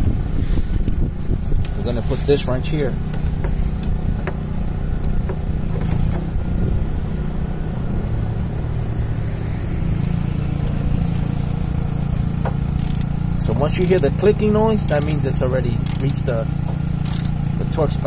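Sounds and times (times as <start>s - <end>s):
engine humming: 0.0s - 18.0s
wrench clicking on bolt: 12.7s - 17.4s.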